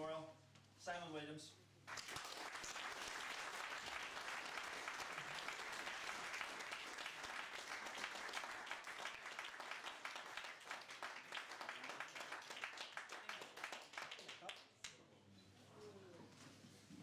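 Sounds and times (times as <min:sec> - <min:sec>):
audience applauding: 0:01.9 - 0:14.7.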